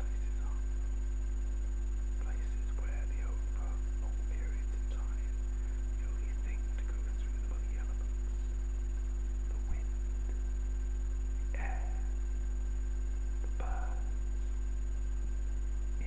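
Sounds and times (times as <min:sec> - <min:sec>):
faint whispering: 0:00.0 - 0:00.7, 0:02.2 - 0:08.6, 0:09.4 - 0:09.9, 0:11.4 - 0:12.2, 0:13.4 - 0:14.6
electrical mains hum: 0:00.0 - 0:16.0.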